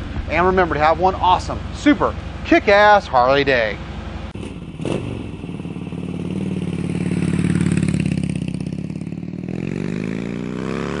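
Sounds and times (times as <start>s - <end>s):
motorcycle engine revving: 3.9s - 11.0s.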